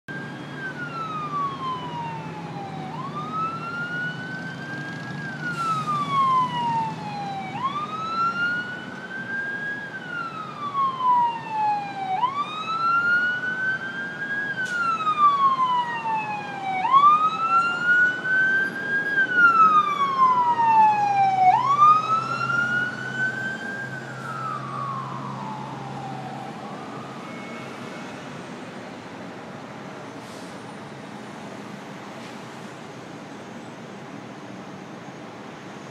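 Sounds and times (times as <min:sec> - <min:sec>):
fire truck siren wailing: 0:00.1 - 0:28.7
freeway traffic hum: 0:00.1 - 0:35.9.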